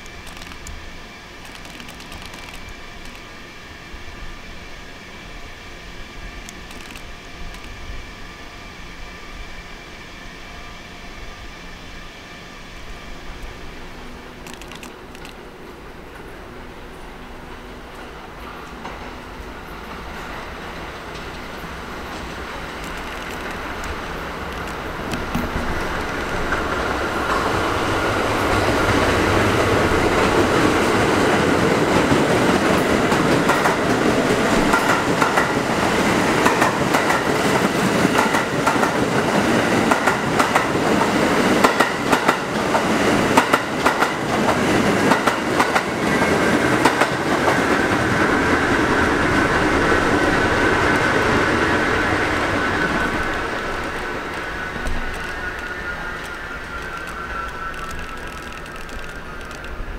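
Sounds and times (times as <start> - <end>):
wheels clicking over rail joints: 0.0 - 0.8, 1.4 - 3.3, 19.9 - 48.5, 53.0 - 59.9
subway train rumble: 0.0 - 59.9
high whine: 46.8 - 59.9.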